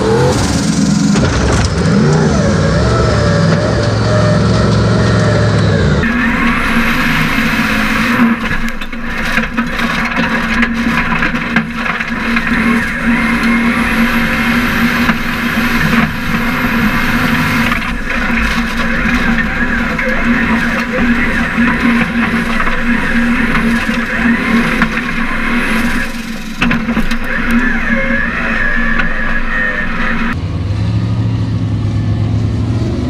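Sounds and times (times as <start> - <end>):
engine at high revs: 0.0 - 33.0
dirt and stones knocking: 6.0 - 29.3.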